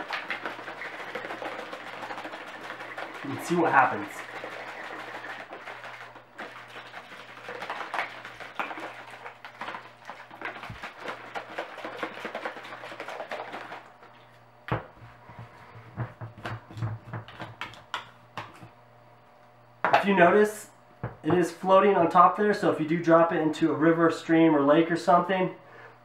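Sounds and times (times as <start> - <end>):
plastic shaker tumbling in water: 0.0 - 14.1
water sloshing in shaken bottle: 0.0 - 14.4.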